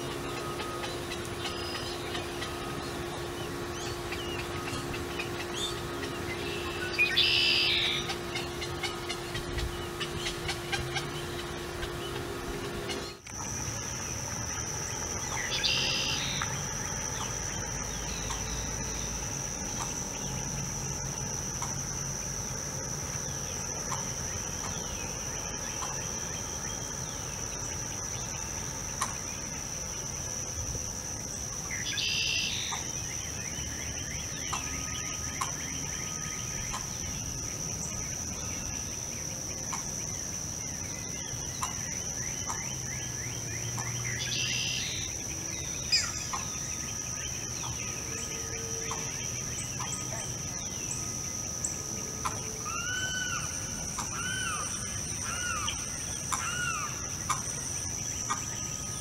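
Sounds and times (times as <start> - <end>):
bird call: 0.0 - 13.3, 15.0 - 19.2, 31.7 - 37.2, 41.0 - 51.1, 52.2 - 59.0
insects droning: 0.0 - 59.0.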